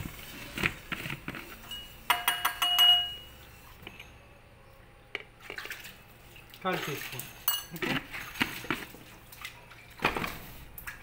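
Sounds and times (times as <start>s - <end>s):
kitchen containers knocking: 1.7s - 3.3s
ringing clinks of utensils: 1.7s - 3.3s, 7.4s - 7.8s.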